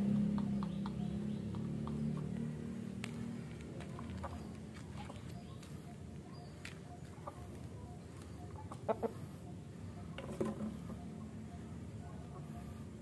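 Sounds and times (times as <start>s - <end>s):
chickens clucking: 0.2s - 13.0s.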